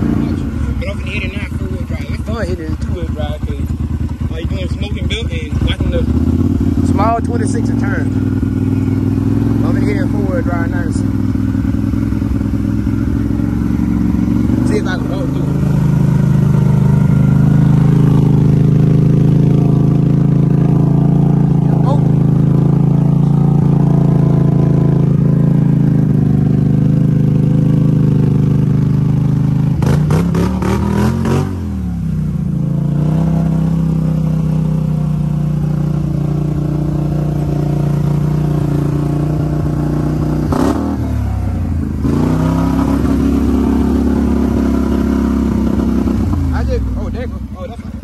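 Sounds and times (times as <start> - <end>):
atv engine running hard: 0.0 - 48.0.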